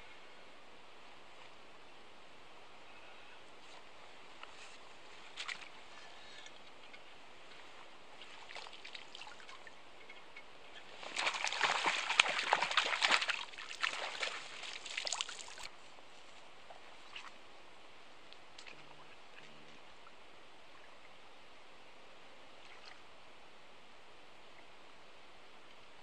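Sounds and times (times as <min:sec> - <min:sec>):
water splashing and trickling: 0:05.2 - 0:09.8, 0:10.7 - 0:15.9, 0:18.4 - 0:20.2.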